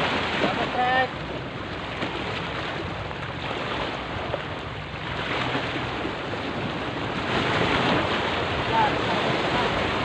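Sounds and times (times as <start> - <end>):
waves splashing against rocks: 0.0 - 10.0.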